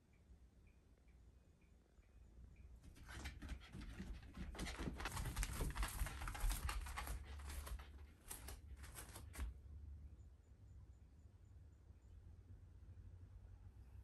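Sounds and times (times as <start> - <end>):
dog paws on mats: 2.8 - 9.6.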